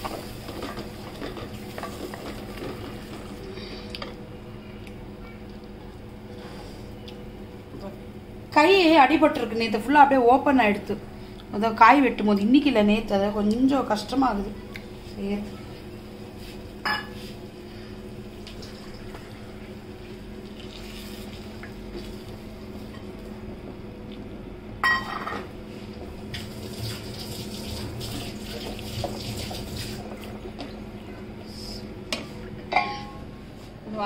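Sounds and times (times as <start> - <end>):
paste frying and bubbling: 0.0 - 3.9, 16.3 - 23.0
steady hum: 0.0 - 34.0.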